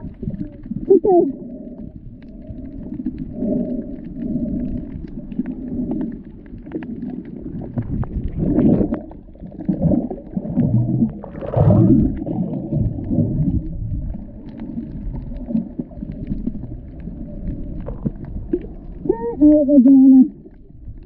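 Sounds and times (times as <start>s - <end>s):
underwater rumbling and swishing: 0.0s - 21.0s.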